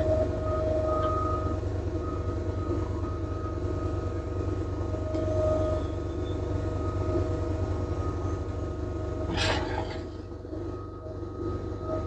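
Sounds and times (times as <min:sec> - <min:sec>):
generator low hum: 0:00.0 - 0:12.0
hydraulic whine: 0:04.7 - 0:12.0.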